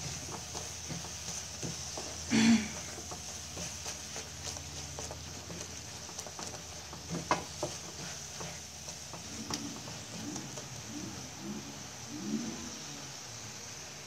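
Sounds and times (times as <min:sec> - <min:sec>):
spatula scraping a frying pan: 0:00.0 - 0:11.3.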